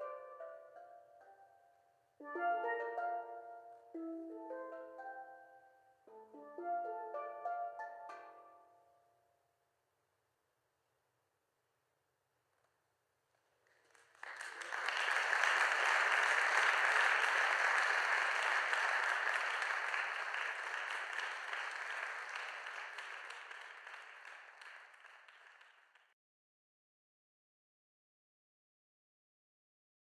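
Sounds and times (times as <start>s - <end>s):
audience applauding: 13.6s - 26.1s.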